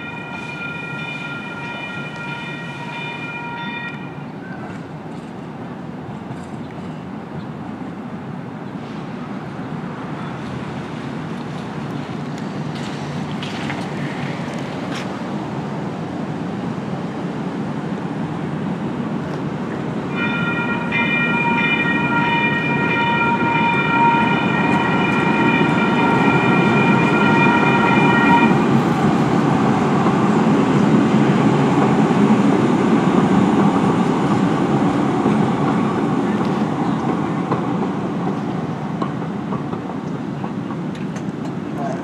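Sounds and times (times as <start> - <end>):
train horn long note: 0.0 - 4.2, 20.1 - 28.7
light rail train rumbling: 0.0 - 42.0.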